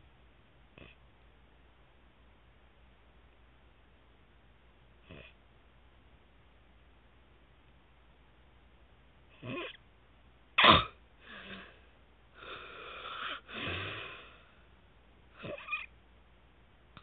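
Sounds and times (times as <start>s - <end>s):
loud snort: 5.0s - 5.4s, 9.4s - 9.8s, 12.4s - 14.4s, 15.4s - 15.9s
man snoring: 12.4s - 14.3s.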